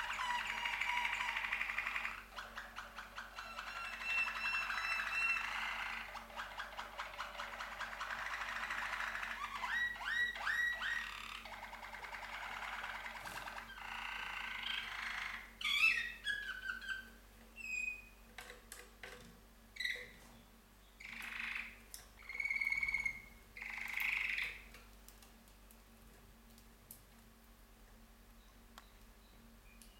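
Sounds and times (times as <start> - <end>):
canaries singing trills: 0.0 - 18.2, 19.8 - 24.7.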